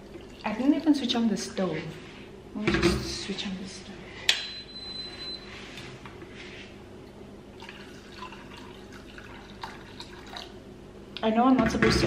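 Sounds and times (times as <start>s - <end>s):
water pouring into a saucepan: 7.6s - 10.6s.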